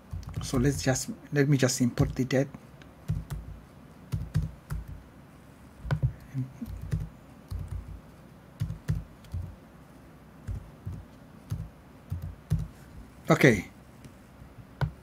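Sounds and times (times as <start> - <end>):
keyboard typing: 0.0 - 1.0, 3.0 - 5.0, 5.8 - 8.0, 8.6 - 9.6, 10.4 - 12.8.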